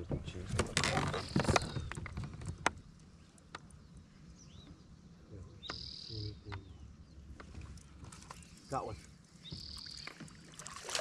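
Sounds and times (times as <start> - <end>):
faint bird chirps: 3.2 - 7.3, 8.2 - 10.5.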